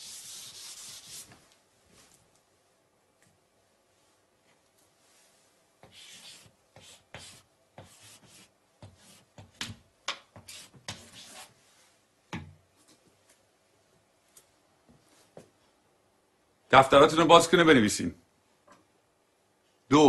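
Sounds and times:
chalk scratching on blackboard: 0:00.0 - 0:01.4, 0:05.8 - 0:09.6, 0:10.4 - 0:11.6.

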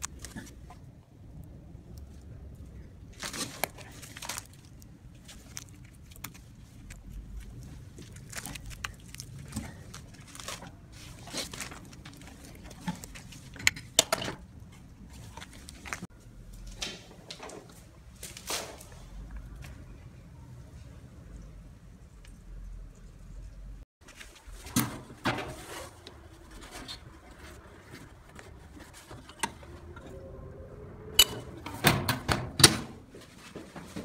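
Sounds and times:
handling clicks and knocks: 0:05.3 - 0:16.0.

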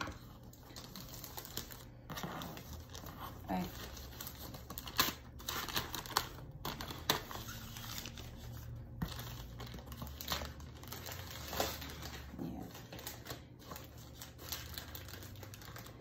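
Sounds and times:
wrapping crinkling: 0:00.0 - 0:16.0
wrapping tearing: 0:00.0 - 0:16.0.

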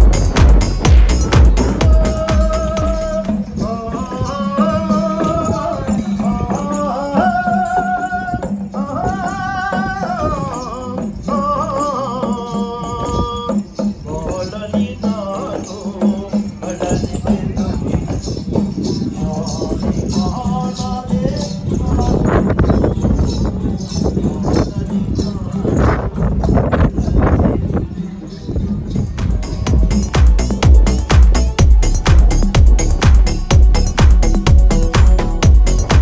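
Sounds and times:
hand percussion jingling: 0:00.0 - 0:36.0
person singing slow folk melody: 0:01.1 - 0:22.5.

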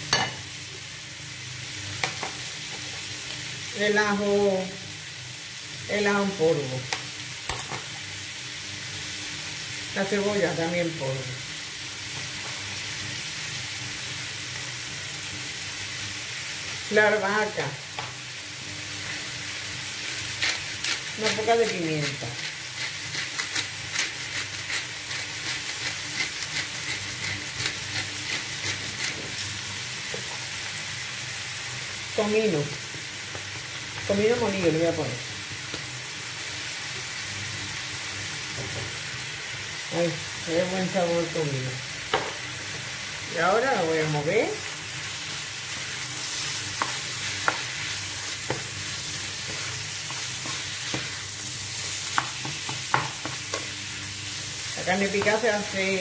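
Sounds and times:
meat sizzling in a frying pan: 0:00.0 - 0:56.0
spatula knocking pan: 0:46.7 - 0:47.7, 0:52.1 - 0:53.7.

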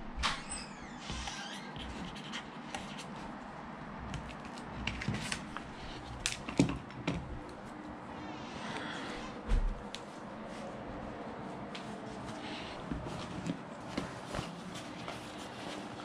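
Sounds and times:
marker pen squeaking: 0:00.4 - 0:02.8.

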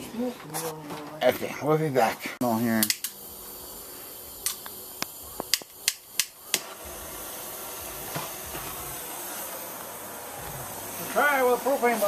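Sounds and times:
gas flame hissing: 0:00.0 - 0:12.0
torch igniter clicks: 0:02.7 - 0:03.3, 0:04.3 - 0:07.2.

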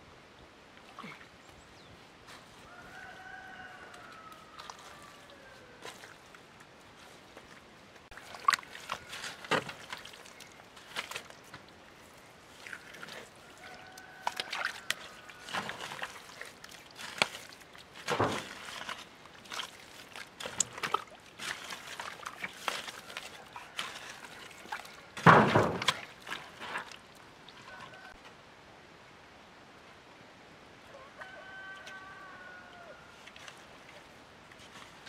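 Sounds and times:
muddy water squelching: 0:00.7 - 0:28.2, 0:31.7 - 0:35.0
hoe chopping wet mud: 0:08.1 - 0:11.7, 0:12.5 - 0:27.0.

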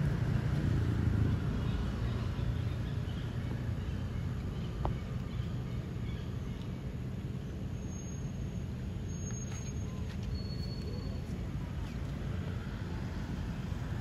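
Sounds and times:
faint bird chirps: 0:09.0 - 0:12.2.

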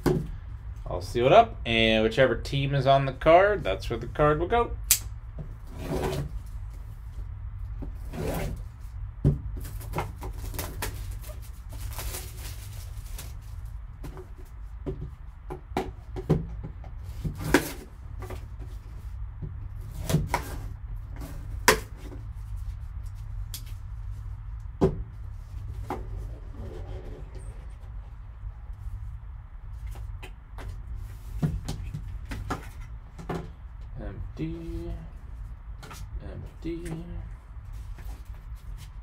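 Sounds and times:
steady low hum: 0:00.0 - 0:39.0
plastic wrap crinkling: 0:09.7 - 0:13.6.

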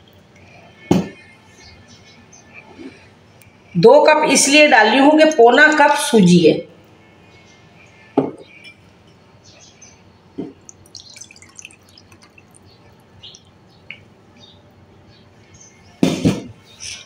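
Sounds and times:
milk trickling into bowl: 0:10.6 - 0:13.6.

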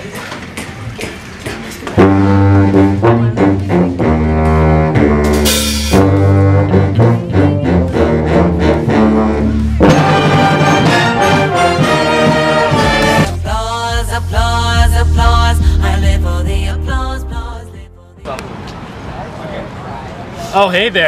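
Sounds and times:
band playing brass and clarinets: 0:02.0 - 0:13.4
cymbal crash: 0:05.3 - 0:06.1.

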